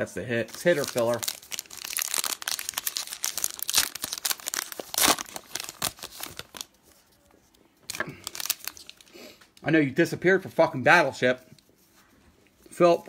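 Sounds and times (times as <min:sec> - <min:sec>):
foil wrapper tearing and crinkling: 0:00.4 - 0:06.7, 0:07.9 - 0:09.1.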